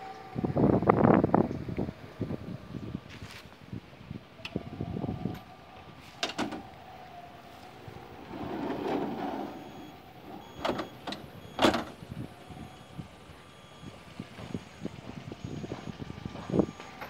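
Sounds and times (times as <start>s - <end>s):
excavator whining: 4.2s - 17.0s.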